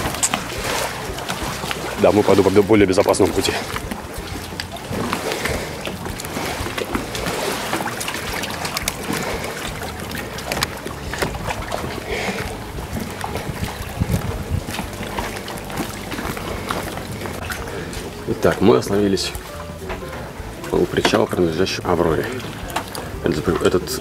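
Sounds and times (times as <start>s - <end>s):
wind on microphone: 0.0s - 18.4s
water: 0.0s - 24.0s.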